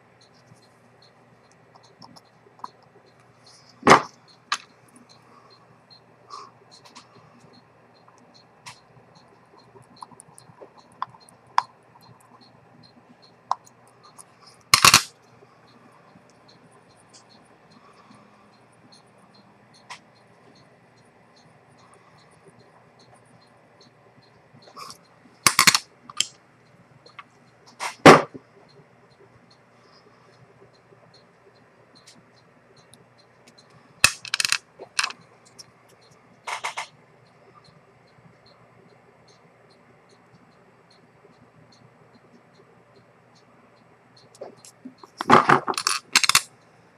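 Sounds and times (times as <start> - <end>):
faint watch ticking: 0.0 - 27.8, 28.4 - 45.2, 45.8 - 46.9
small metallic clicks of watch: 44.2 - 46.6.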